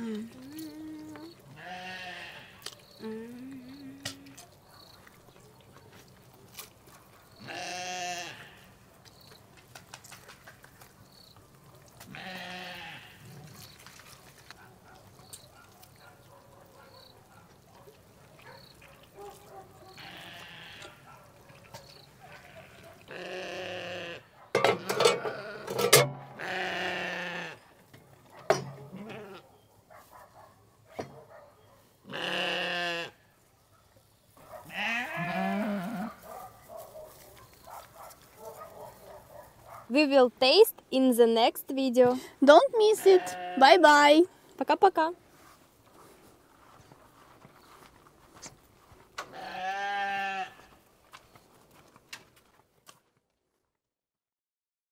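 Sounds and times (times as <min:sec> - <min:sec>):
sheep bleating: 0:01.0 - 0:02.6, 0:07.4 - 0:08.7, 0:12.1 - 0:13.3, 0:20.0 - 0:21.0, 0:22.3 - 0:24.3, 0:25.0 - 0:25.7, 0:26.3 - 0:27.6, 0:28.9 - 0:29.4, 0:32.1 - 0:33.2, 0:34.7 - 0:36.2, 0:42.9 - 0:43.8, 0:49.3 - 0:50.7.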